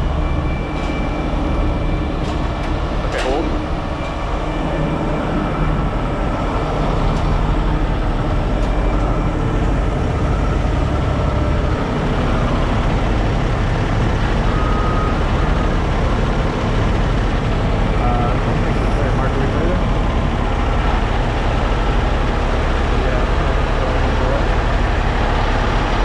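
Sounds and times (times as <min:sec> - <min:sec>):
diesel truck engines running: 0:00.0 - 0:26.0.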